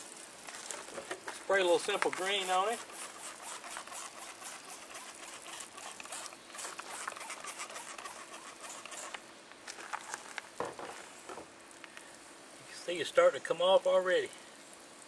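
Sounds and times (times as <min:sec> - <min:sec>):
cleaner spray hissing: 0:01.5 - 0:09.2.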